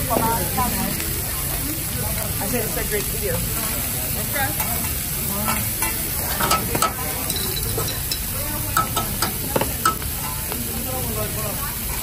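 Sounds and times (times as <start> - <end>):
meat sizzling on a griddle: 0.0 - 12.0
metal spatula clinking and scraping: 4.5 - 10.5.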